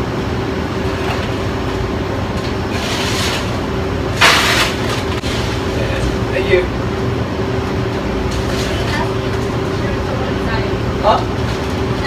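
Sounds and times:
ice machine humming: 0.0 - 12.0
ice being scooped: 2.7 - 3.6.

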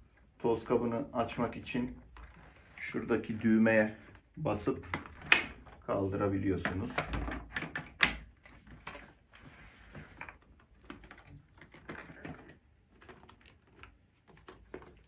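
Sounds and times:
plastic parts rattling and rubbing: 0.0 - 15.0
plastic clicks and knocks: 6.6 - 9.1.

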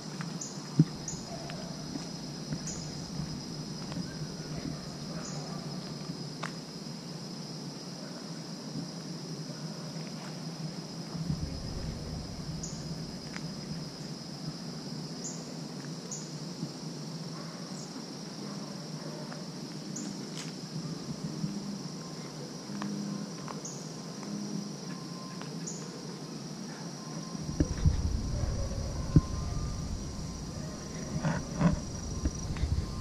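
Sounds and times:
high insect chirps: 0.0 - 33.0
insects chorus: 0.0 - 33.0
low thumps and knocks: 1.9 - 4.8, 11.2 - 13.8, 27.4 - 33.0.

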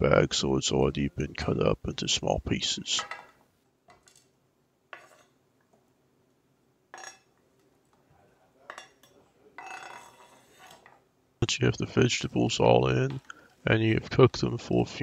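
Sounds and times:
knife scraping cutting board: 10.1 - 10.9.

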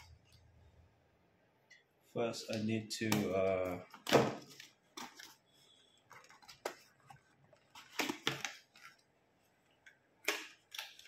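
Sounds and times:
cardboard rustling: 3.4 - 9.0.

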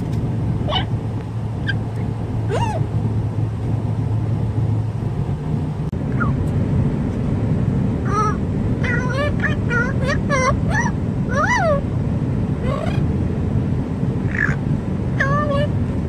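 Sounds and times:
car road noise: 0.0 - 16.0
parrot calling and squawking: 0.6 - 1.0, 1.6 - 2.9, 8.1 - 11.8, 12.6 - 13.1, 14.3 - 14.6.

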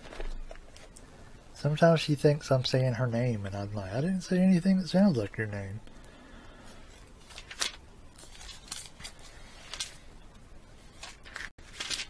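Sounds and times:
paper pages rustling: 6.9 - 10.1, 10.8 - 12.0.

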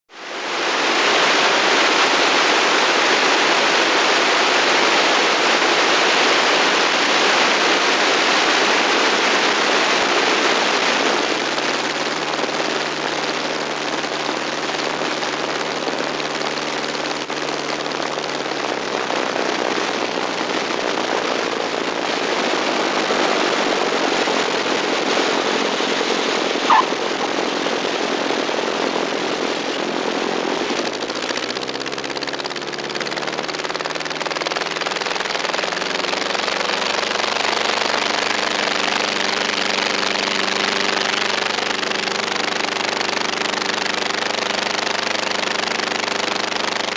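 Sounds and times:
aircraft engine hum: 0.1 - 46.9
strong wind rush: 0.2 - 32.6
short squeak: 26.7 - 26.9.

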